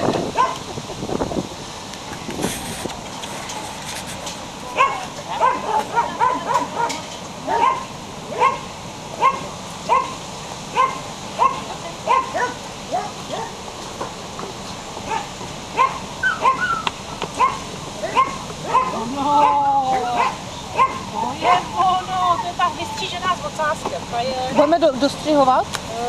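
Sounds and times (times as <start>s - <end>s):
puppy yelping and whining: 15.8s - 23.2s.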